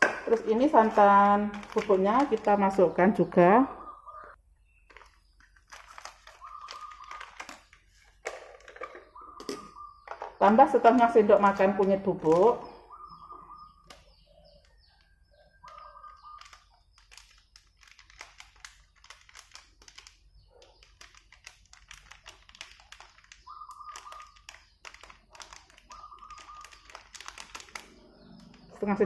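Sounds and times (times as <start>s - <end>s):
plastic sachet crinkling: 0.4s - 2.8s, 4.7s - 9.8s, 13.8s - 28.8s.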